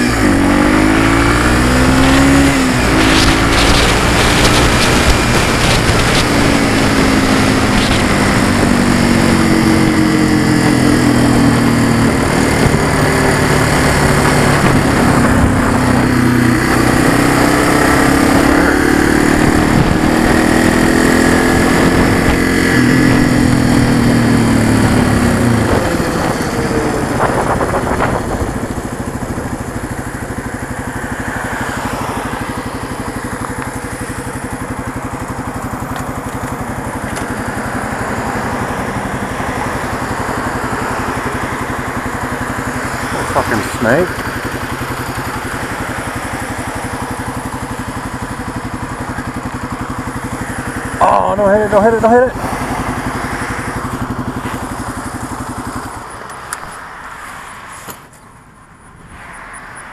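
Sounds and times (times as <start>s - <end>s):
wind noise: 0.0s - 30.0s
motorcycle engine running: 0.0s - 59.9s.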